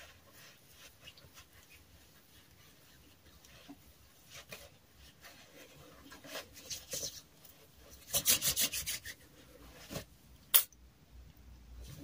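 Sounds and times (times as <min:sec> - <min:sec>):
hands rubbing together: 0:07.9 - 0:09.3.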